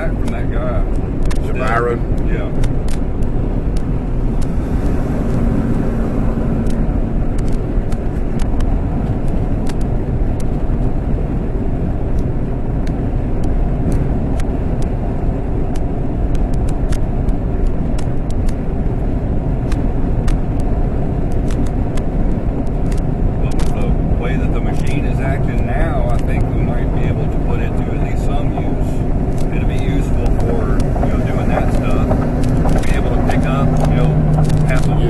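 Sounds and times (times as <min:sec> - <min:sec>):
vehicle cabin road and engine noise: 0:00.0 - 0:35.0
light ticks: 0:15.7 - 0:18.6, 0:24.5 - 0:35.0.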